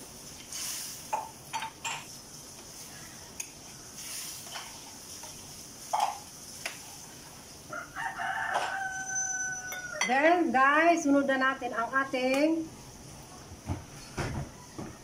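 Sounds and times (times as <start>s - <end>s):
gas burner hissing: 0.0s - 7.8s
utensils stirring in steel wok: 1.8s - 7.0s
clinks and knocks against pan: 5.9s - 6.2s.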